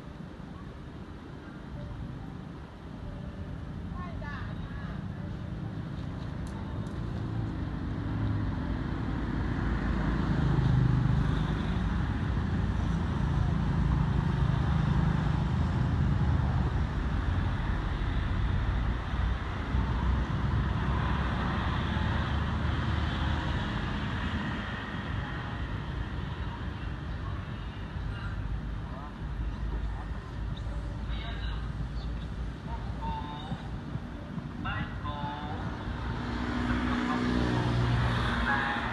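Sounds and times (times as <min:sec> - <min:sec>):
engine rumbling: 0:00.0 - 0:38.9.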